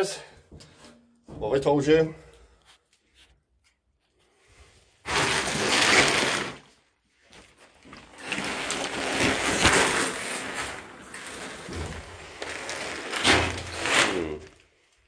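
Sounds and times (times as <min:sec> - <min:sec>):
plastic bag rustling: 0:05.1 - 0:15.0.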